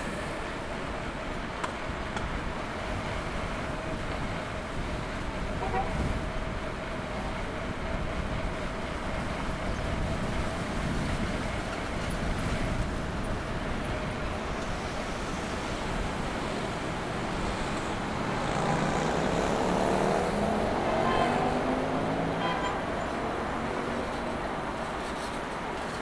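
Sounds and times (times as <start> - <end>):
city street traffic: 0.0 - 26.0
vehicle accelerating past: 17.0 - 24.7.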